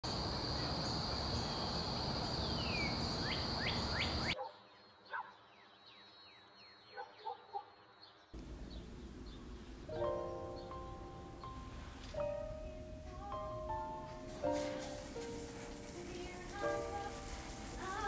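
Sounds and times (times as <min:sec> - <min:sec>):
small birds chirping: 0:00.1 - 0:18.0
steady background noise: 0:08.4 - 0:18.0.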